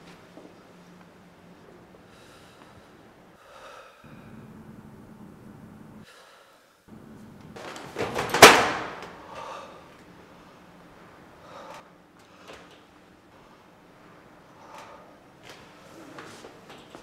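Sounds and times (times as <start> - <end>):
metal locker door slamming: 7.6 - 9.2.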